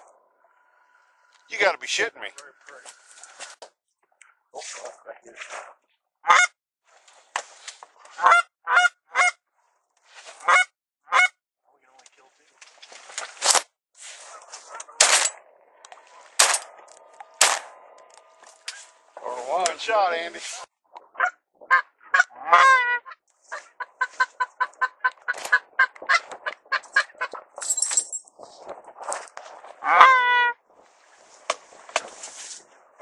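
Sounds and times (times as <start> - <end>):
geese honking: 6.3 - 6.5, 8.2 - 9.4, 10.4 - 11.3, 15.8 - 20.3, 21.1 - 27.5, 29.8 - 30.6.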